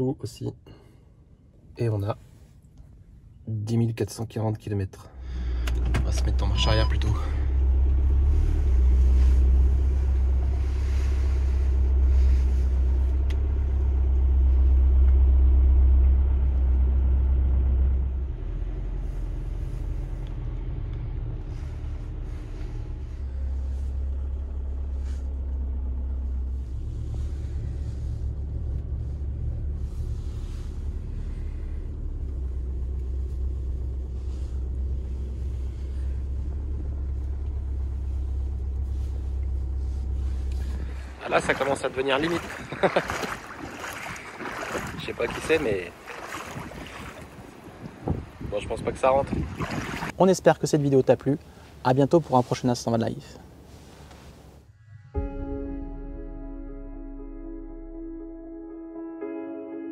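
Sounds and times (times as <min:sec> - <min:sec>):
diesel engine rumble: 0:00.0 - 0:59.0
road noise: 0:05.0 - 0:55.5.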